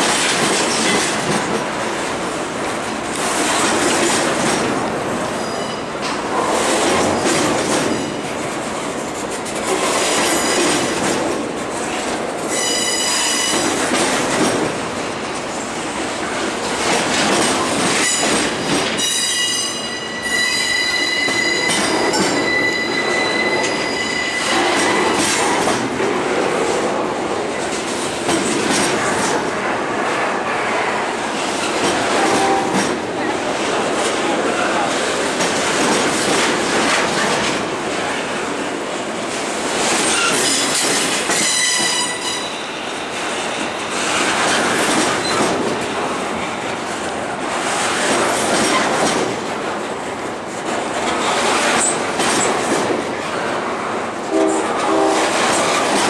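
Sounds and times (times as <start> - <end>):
train wheels clattering over rail joints: 0.0 - 19.3, 23.6 - 42.3, 43.0 - 53.5, 54.2 - 56.0
high-pitched wheel squeal: 12.5 - 13.6, 19.0 - 24.5, 41.4 - 42.6.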